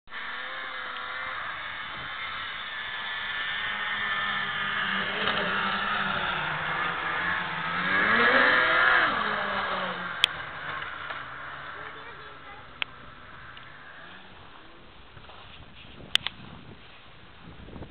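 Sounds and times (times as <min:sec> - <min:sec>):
snowmobile engines running: 0:00.0 - 0:17.9
snowmobile passing by: 0:00.1 - 0:15.5.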